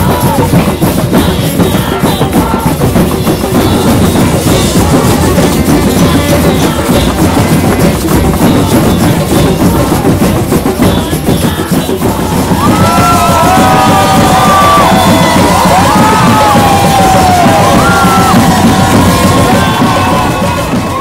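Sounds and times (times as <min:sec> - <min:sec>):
hand drums beating: 0:00.0 - 0:21.0
crowd whooping and yelling: 0:12.2 - 0:21.0.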